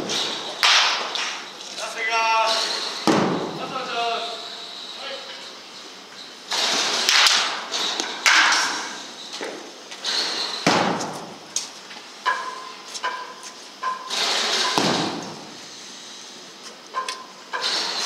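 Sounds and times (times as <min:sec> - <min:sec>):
baseball bat cracking ball: 0:00.6 - 0:01.3.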